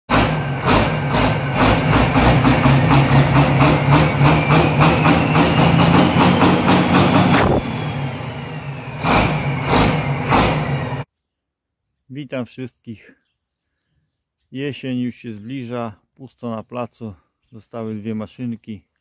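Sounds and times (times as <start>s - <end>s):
engine knocking: 0.1s - 8.0s
diesel engine drone: 0.1s - 11.1s.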